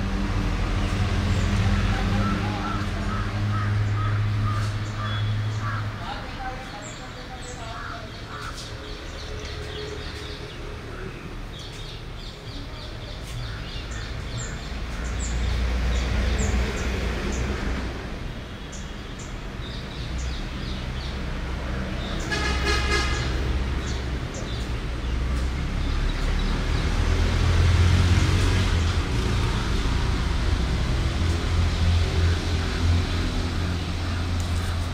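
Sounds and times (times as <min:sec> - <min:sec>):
road traffic rumbling: 0:00.0 - 0:34.9
vehicle horn toot: 0:22.3 - 0:23.4.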